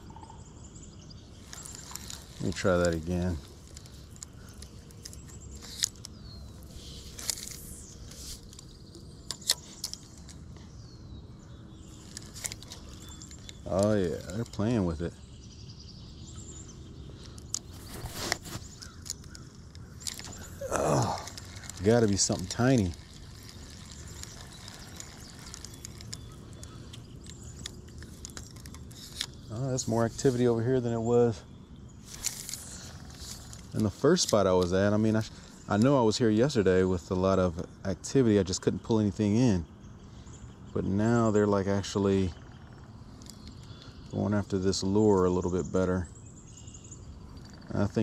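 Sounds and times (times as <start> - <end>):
faint bird chirps: 0.0 - 48.0
fishing reel clicks: 21.2 - 29.3.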